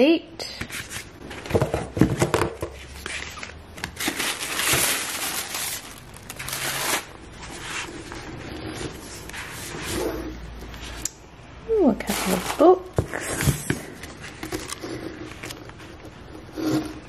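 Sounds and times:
tissue paper crinkling: 3.0 - 7.9, 12.0 - 13.0.

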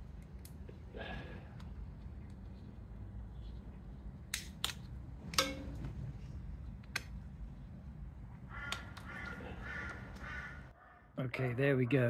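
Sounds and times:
animal calling: 8.5 - 11.2.

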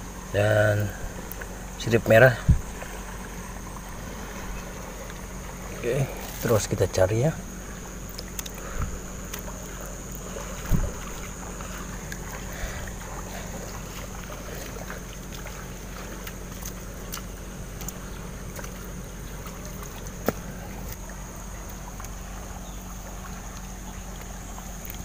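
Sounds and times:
river water lapping: 0.0 - 25.0
wet rock and mud crumbling: 8.0 - 22.2.

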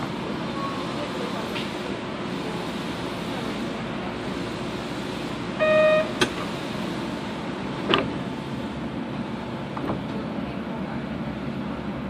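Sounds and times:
train car interior noise: 0.0 - 12.0
short electronic beep: 5.6 - 6.2.

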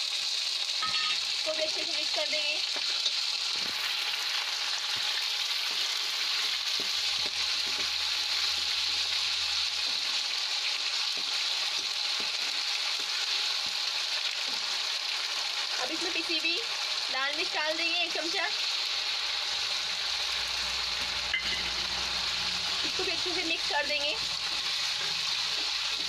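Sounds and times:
onions sizzling in hot oil: 0.0 - 26.0
steel spoon stirring and clicking: 24.3 - 26.0.

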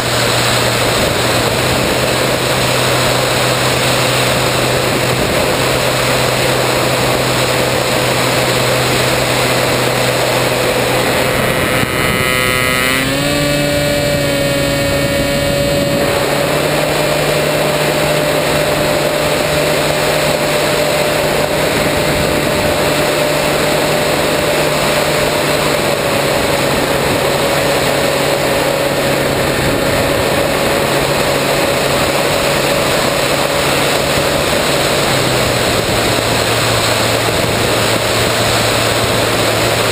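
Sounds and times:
wind rushing over camera: 0.0 - 19.3
electric motor whine: 0.0 - 39.9
rising high tones: 7.6 - 20.2.

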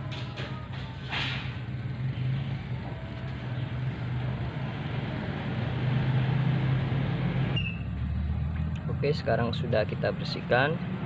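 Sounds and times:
low mechanical hum: 0.0 - 9.2.

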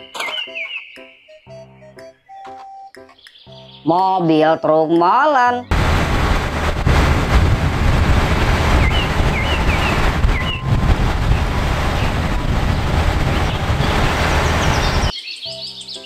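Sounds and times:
diesel truck engine running: 5.7 - 15.1
wind buffeting microphone: 5.7 - 15.1.

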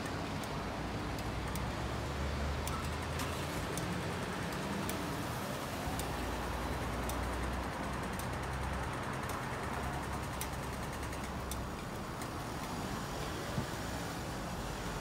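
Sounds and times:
faint clicks: 0.0 - 1.7, 2.5 - 5.1, 5.8 - 13.4
vehicles passing: 0.0 - 15.0.

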